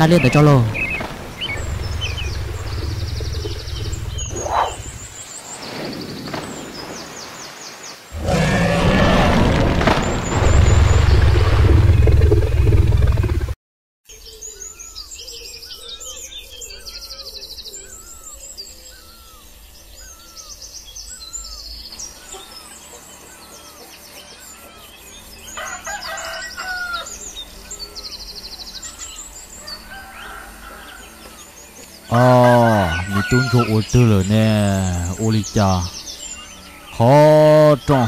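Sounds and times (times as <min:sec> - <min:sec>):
small birds chirping: 0:00.0 - 0:08.8, 0:14.1 - 0:38.0
rooster crowing: 0:25.5 - 0:27.2, 0:29.6 - 0:31.2.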